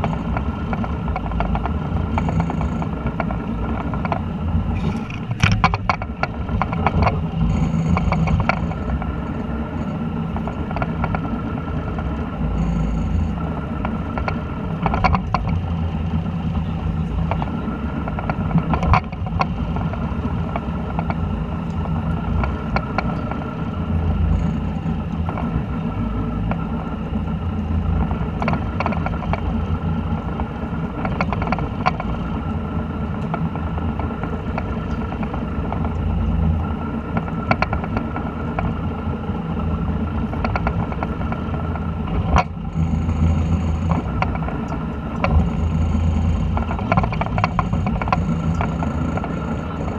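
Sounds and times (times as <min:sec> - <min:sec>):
knocks and clicks: 0:00.0 - 0:09.2, 0:31.0 - 0:32.2, 0:40.3 - 0:49.9
boat engine humming: 0:00.0 - 0:49.9.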